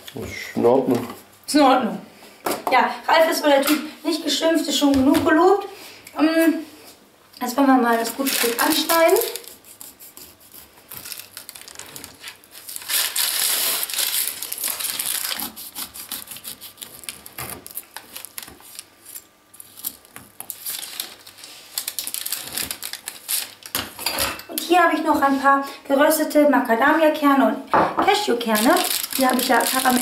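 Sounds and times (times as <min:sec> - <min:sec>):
knife crunching through cake: 0:14.5 - 0:17.3.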